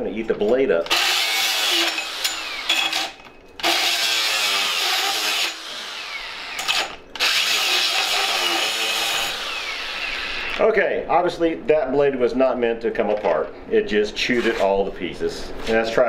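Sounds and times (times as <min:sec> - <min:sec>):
angle grinder grinding steel: 0:00.9 - 0:10.6.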